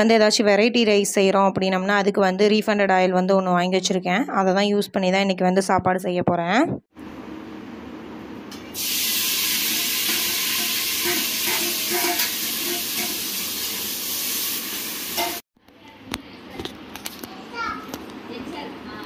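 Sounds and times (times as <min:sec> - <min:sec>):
hot oil sizzling in a pot: 0:08.7 - 0:15.4.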